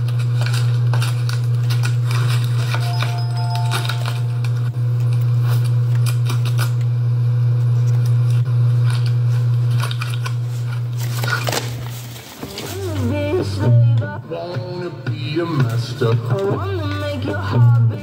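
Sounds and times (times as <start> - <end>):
stiff paper rustling: 0.0 - 6.8, 8.7 - 13.6
loud steady low hum: 0.0 - 14.6.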